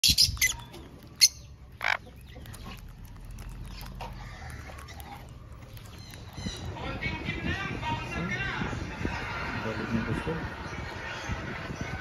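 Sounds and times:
parrots squawking: 0:00.0 - 0:02.9, 0:04.0 - 0:06.8.

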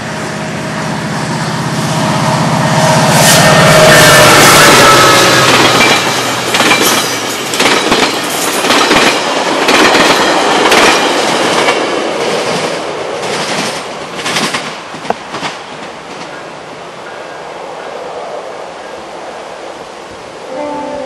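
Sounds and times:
train wheels clacking over rail joints: 0:03.9 - 0:16.5.

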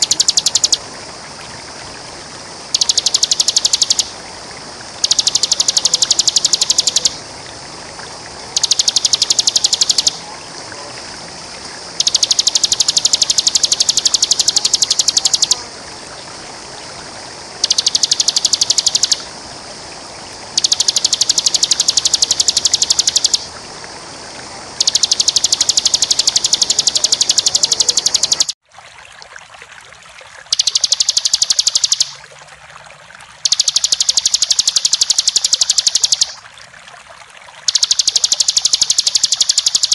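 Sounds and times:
bird singing fast trills: 0:00.0 - 0:00.8, 0:02.8 - 0:04.1, 0:05.0 - 0:07.2, 0:08.6 - 0:10.2, 0:12.0 - 0:15.6, 0:17.6 - 0:19.2, 0:20.6 - 0:23.5, 0:24.8 - 0:28.6, 0:30.5 - 0:32.2, 0:33.5 - 0:36.4, 0:37.7 - 0:39.9
background hiss: 0:00.0 - 0:28.6.

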